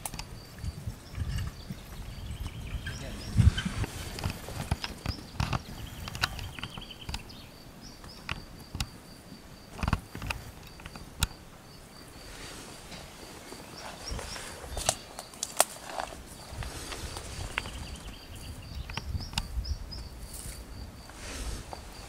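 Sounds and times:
insect trilling: 0.3 - 22.0
sharp clicks: 3.8 - 7.4, 8.0 - 9.0, 9.7 - 11.4, 18.7 - 20.1.

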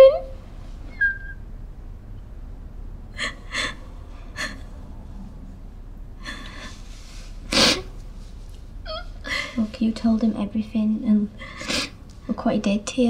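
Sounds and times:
woman crying: 3.2 - 3.8, 4.4 - 4.6, 8.9 - 9.7.

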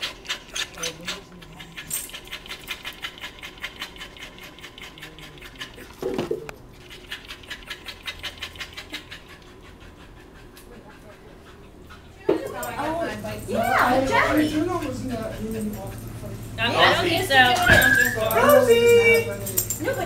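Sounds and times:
dog panting: 0.0 - 20.0.

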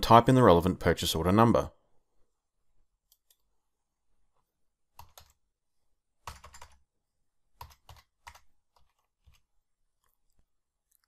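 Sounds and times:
keyboard typing: 4.9 - 5.4, 6.2 - 6.9, 7.6 - 10.2.

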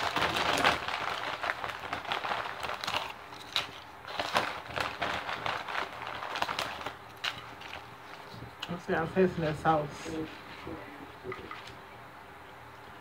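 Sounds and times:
chewing crunchy chips: 0.0 - 7.8
chip bag crinkling: 0.0 - 8.9.

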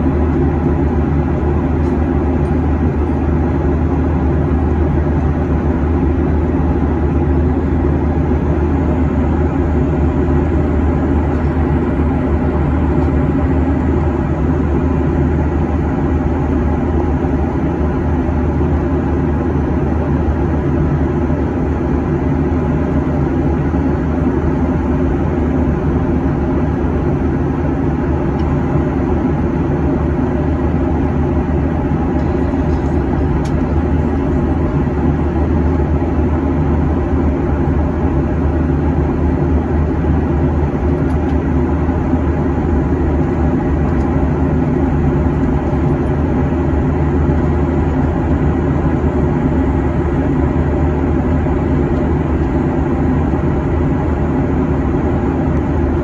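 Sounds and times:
airplane cabin drone: 0.0 - 56.0.

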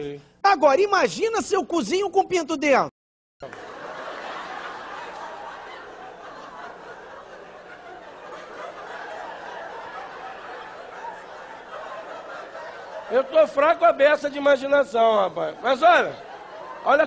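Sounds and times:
audience laughter: 3.4 - 17.0.

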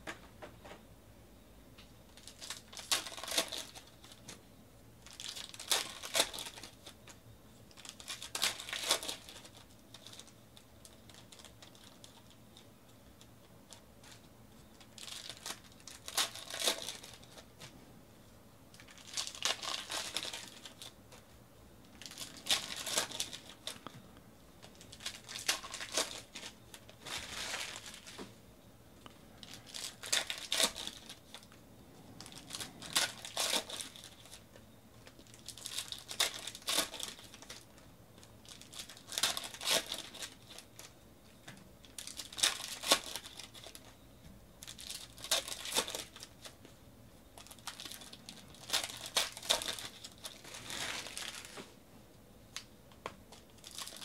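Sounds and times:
foil wrappers torn and crinkled: 2.1 - 4.4, 5.0 - 12.6, 14.8 - 17.7, 18.7 - 21.2, 21.9 - 23.9, 24.6 - 28.2, 29.4 - 31.6, 32.2 - 41.0, 41.8 - 44.0, 44.6 - 46.6, 47.4 - 51.7, 53.3 - 54.0.

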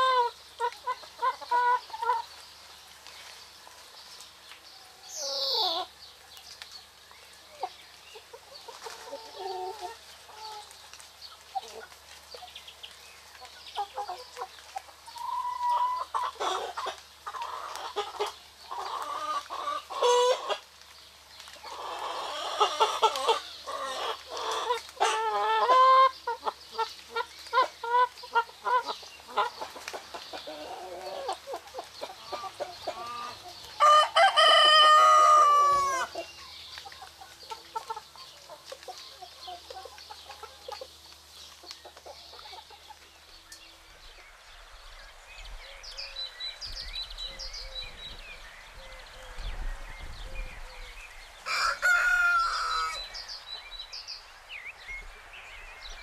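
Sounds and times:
hens clucking: 0.0 - 2.4, 7.5 - 10.8, 13.4 - 20.7, 21.6 - 43.2
rooster crowing: 33.8 - 36.1, 51.4 - 53.2.

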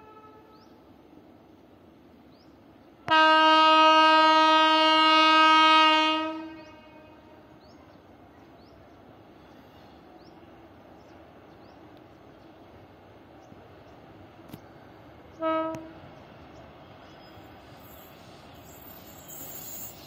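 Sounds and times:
locomotive horn blast: 0.0 - 0.6, 3.1 - 7.4, 15.4 - 16.1.

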